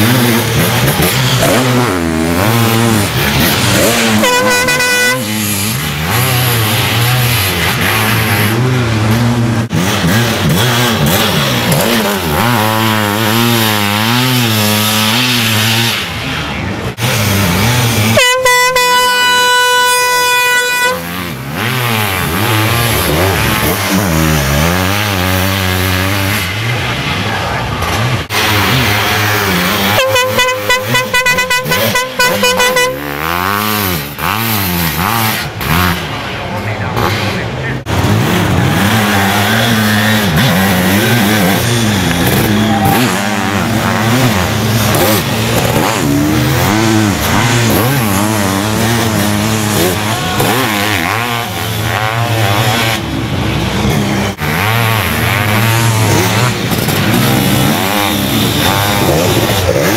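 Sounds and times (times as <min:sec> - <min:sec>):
motorcycle engines revving past: 0:00.0 - 0:59.9
air horn: 0:03.8 - 0:05.7, 0:18.0 - 0:21.3, 0:29.9 - 0:33.6.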